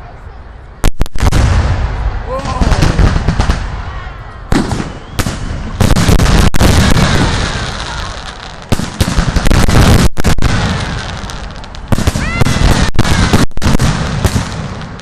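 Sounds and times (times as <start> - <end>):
firework crackling and rumbling: 0.8 - 15.0.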